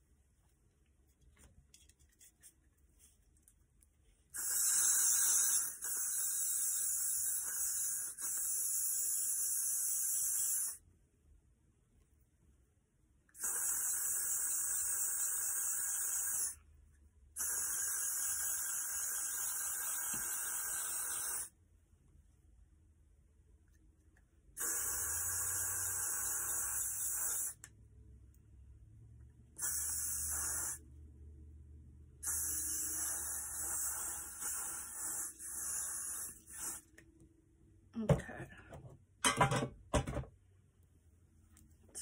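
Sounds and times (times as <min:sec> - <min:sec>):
aerosol spray can hissing: 0:04.4 - 0:10.8, 0:13.4 - 0:16.6, 0:17.4 - 0:21.5, 0:24.6 - 0:27.6, 0:29.6 - 0:30.8, 0:32.2 - 0:36.9.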